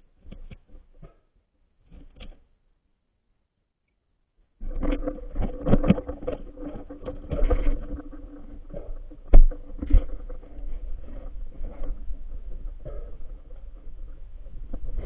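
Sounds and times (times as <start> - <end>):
faint steady hum: 3.2 - 15.0
muffled underwater handling bumps: 4.6 - 15.0.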